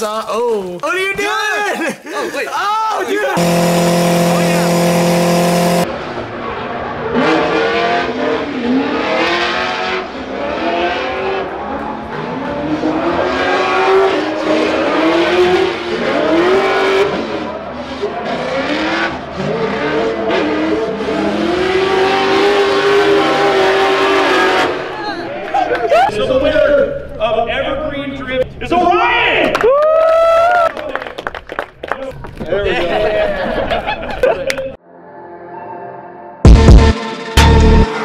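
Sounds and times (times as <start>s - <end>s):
car engines revving: 3.4s - 25.0s.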